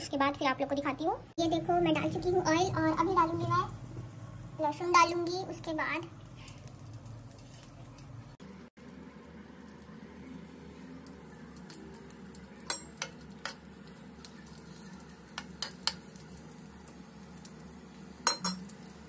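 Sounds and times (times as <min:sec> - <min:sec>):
garlic frying in hot oil: 0:04.4 - 0:19.0.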